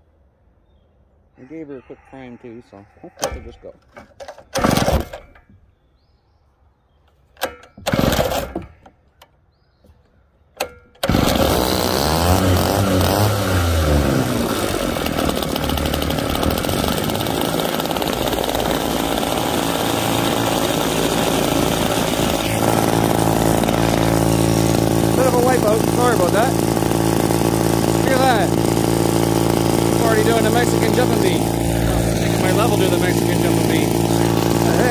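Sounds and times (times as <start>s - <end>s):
cut-off saw pull-starting: 7.8s - 8.8s, 10.6s - 34.9s
two-stroke engine running and revving: 11.0s - 34.9s.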